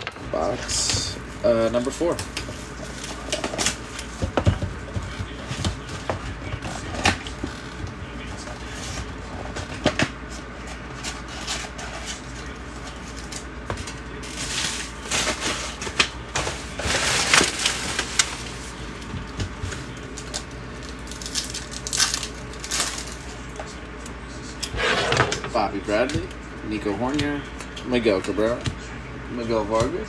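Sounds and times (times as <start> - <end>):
plastic wrapping crinkling: 19.8 - 23.6
cardboard packaging tearing: 21.0 - 23.3.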